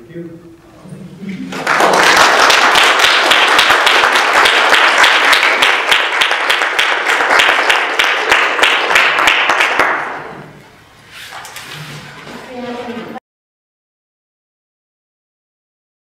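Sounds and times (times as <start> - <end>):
audience applauding: 1.5 - 10.4.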